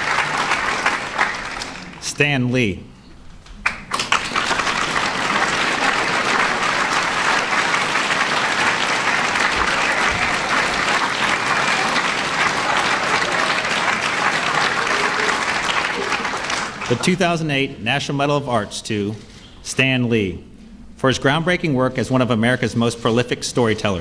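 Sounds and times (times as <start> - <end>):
audience applauding: 0.0 - 2.0, 3.6 - 17.4.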